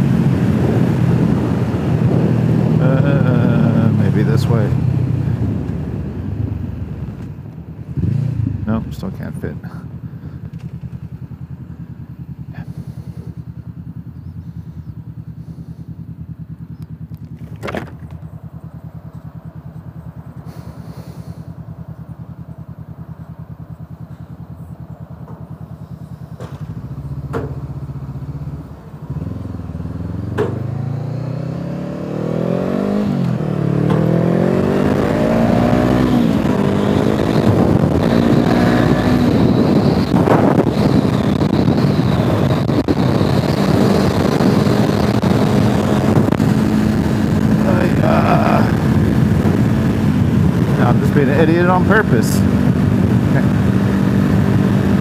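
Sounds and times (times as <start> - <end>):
wind noise: 0.0 - 8.6, 32.1 - 55.0
motorcycle engine idling and revving: 0.0 - 55.0.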